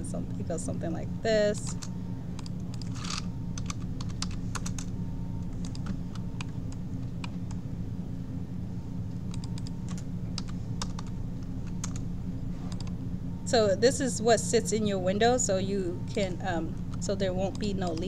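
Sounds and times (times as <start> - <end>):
steady low hum: 0.0 - 18.0
keyboard typing: 1.6 - 7.6, 9.3 - 12.0.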